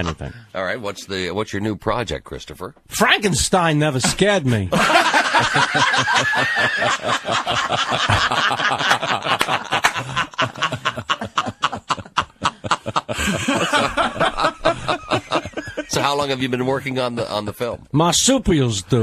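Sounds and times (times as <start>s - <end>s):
people laughing: 4.5s - 17.8s.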